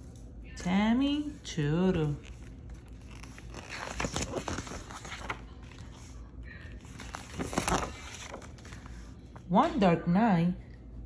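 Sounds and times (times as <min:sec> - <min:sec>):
paper pages rustling: 0:02.0 - 0:09.5.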